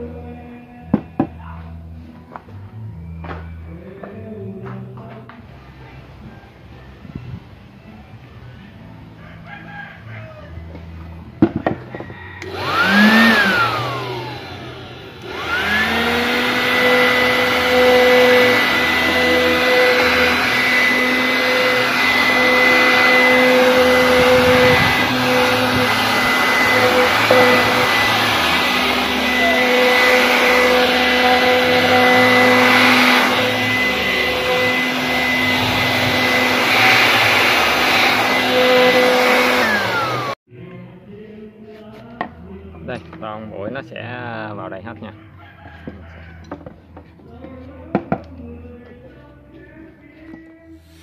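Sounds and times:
vacuum motor whine: 12.4s - 40.4s
rushing air: 12.5s - 40.4s.

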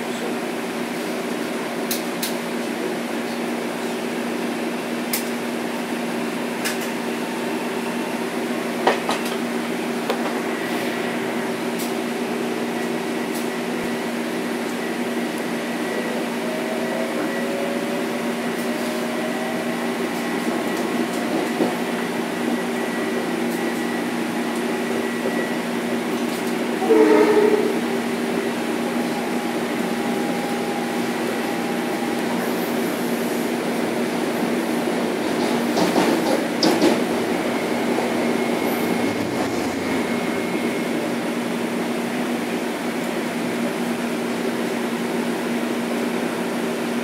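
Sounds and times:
train motor whine rising: 36.9s - 42.6s.

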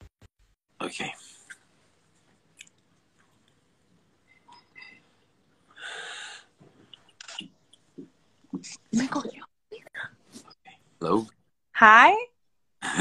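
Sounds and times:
breathy hiss of smoking breath: 5.7s - 6.6s.

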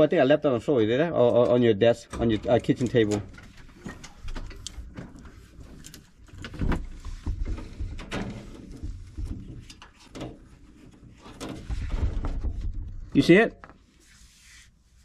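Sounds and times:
clicks and knocks in metal cabinet: 1.3s - 13.1s
rustling: 2.4s - 15.0s.

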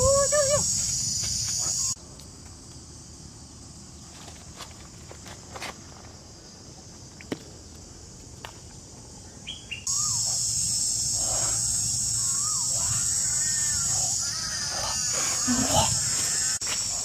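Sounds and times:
insects droning: 0.0s - 17.0s
bird calls: 9.2s - 17.0s.

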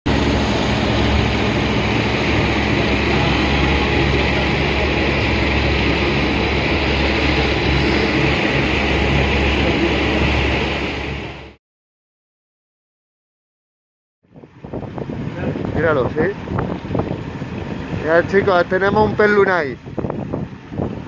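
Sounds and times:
boat engine droning: 0.0s - 11.6s, 14.3s - 21.0s
churning wake water: 0.1s - 11.6s, 14.3s - 21.0s.

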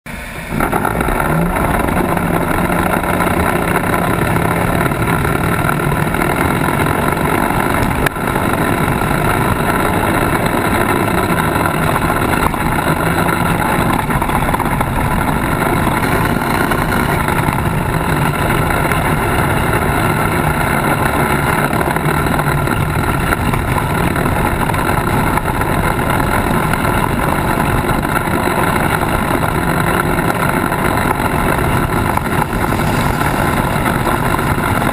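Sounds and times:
off-road vehicle engine running: 0.0s - 34.9s.

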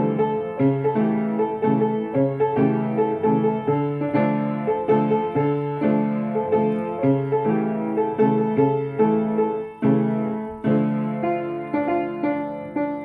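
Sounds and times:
upright piano chords and notes: 0.0s - 13.0s.

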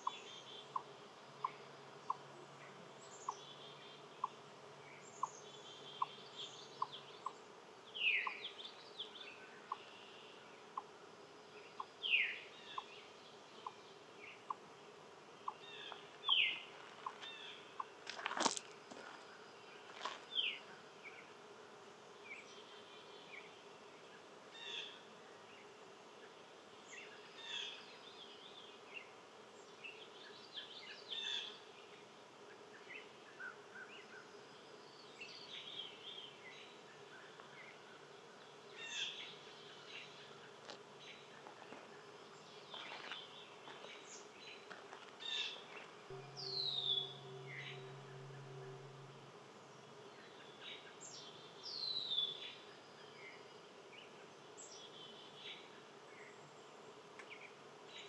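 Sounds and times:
steady low buzz: 45.8s - 51.7s
bird chirps: 46.1s - 52.4s.

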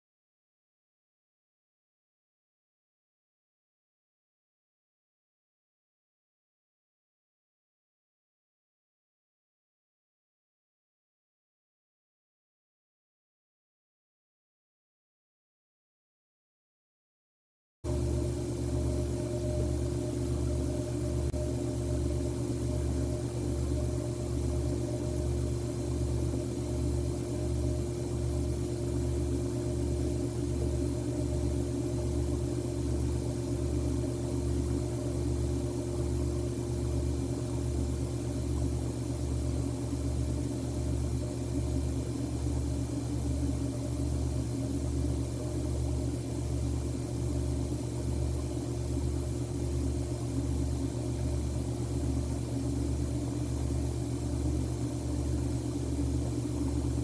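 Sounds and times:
pulsing mechanical hum: 17.9s - 57.0s.

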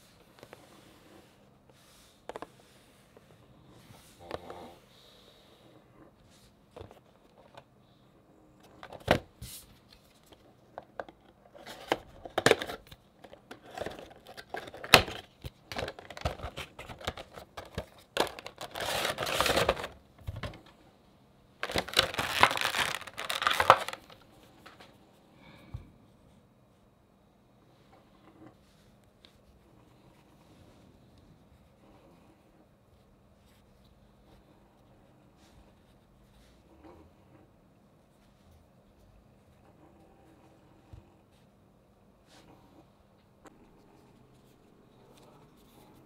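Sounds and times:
packaging crinkling and rustling: 9.9s - 20.7s, 21.6s - 24.8s.

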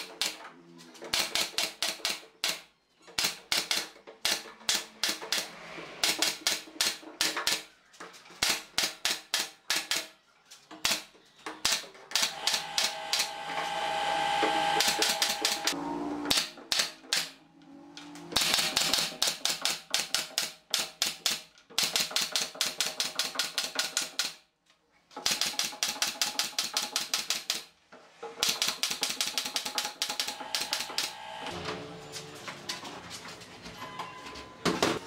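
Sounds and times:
nail gun firing into wood: 1.1s - 7.7s, 10.8s - 13.3s, 16.3s - 17.4s, 18.4s - 24.4s, 25.2s - 27.7s, 28.4s - 31.2s.

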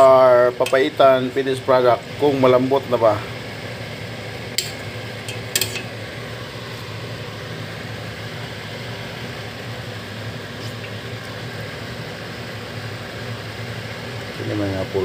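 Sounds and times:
low hum with hiss: 0.0s - 15.0s
metal spoon clinking on pot: 4.6s - 5.9s.

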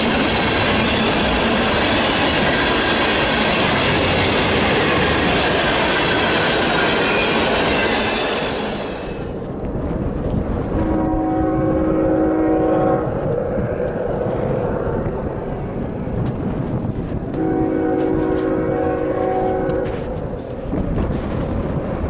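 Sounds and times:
steady low rumble: 9.3s - 22.0s
locomotive air horn blasts: 10.8s - 13.1s, 17.3s - 20.2s.

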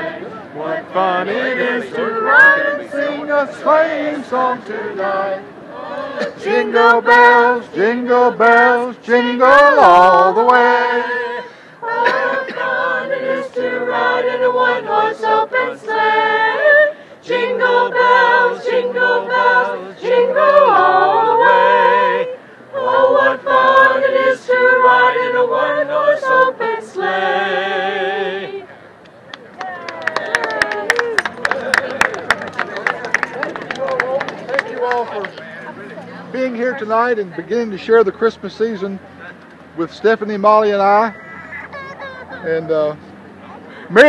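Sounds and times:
women singing a cappella: 0.0s - 28.7s.

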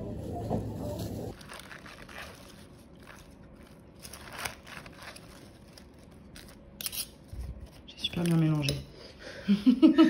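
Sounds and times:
salad leaves crunching: 1.0s - 8.4s.

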